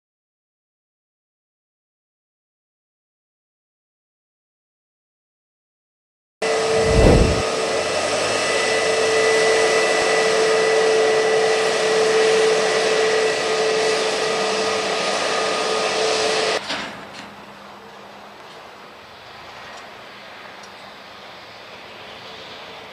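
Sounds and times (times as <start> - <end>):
jet engine whine: 6.4 - 22.9.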